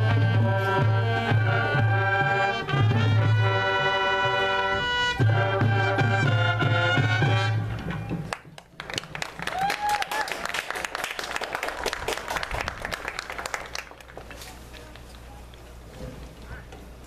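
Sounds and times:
marching band brass: 0.0 - 8.3.

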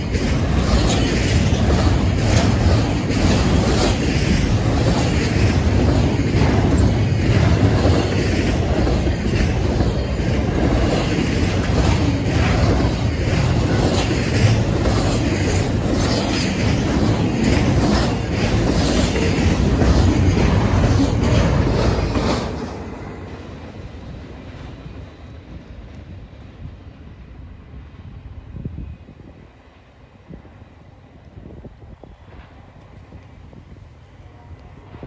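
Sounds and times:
wheels clacking over rail joints: 0.0 - 23.5
train cars rumbling past: 0.0 - 35.0.

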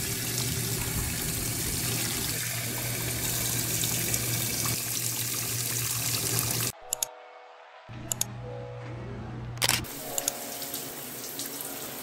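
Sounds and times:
water running from a tap: 0.0 - 6.7, 10.3 - 12.0.

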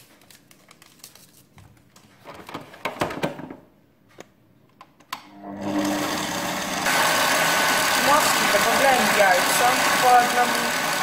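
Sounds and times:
stand mixer motor humming: 5.4 - 11.0.

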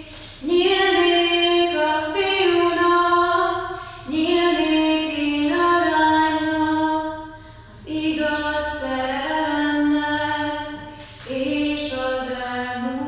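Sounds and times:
woman singing unaccompanied: 0.0 - 13.0.

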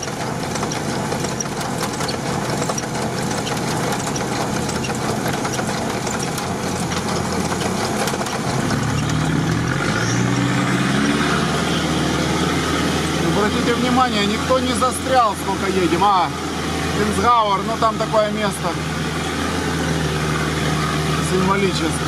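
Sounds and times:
heavy rain on vehicle body: 0.0 - 9.7
vehicle engine running: 0.0 - 22.0.

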